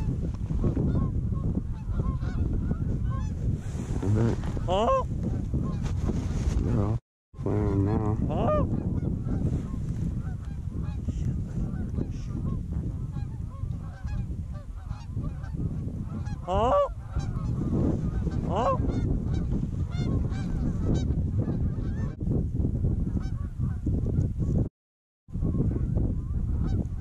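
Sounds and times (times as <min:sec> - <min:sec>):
geese honking: 0:11.7 - 0:15.6, 0:16.2 - 0:22.1.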